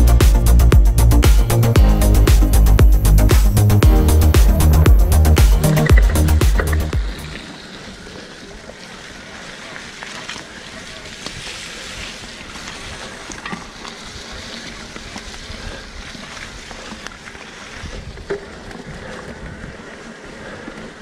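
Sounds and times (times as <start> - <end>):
tyres rolling on trail: 0.0 - 21.0
wind buffeting microphone: 10.8 - 21.0.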